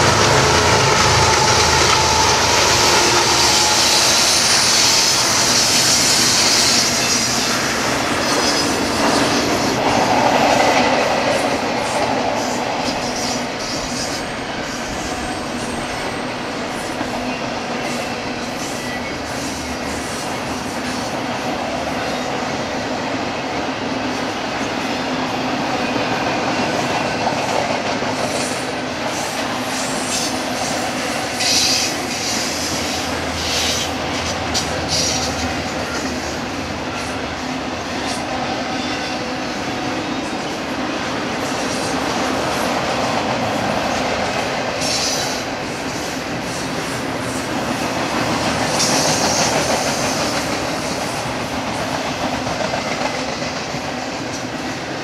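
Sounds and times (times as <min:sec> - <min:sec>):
high wheel squeal: 0:00.0 - 0:10.5, 0:12.4 - 0:21.2, 0:29.2 - 0:40.5
train wheels rumbling on rail: 0:00.0 - 0:55.0.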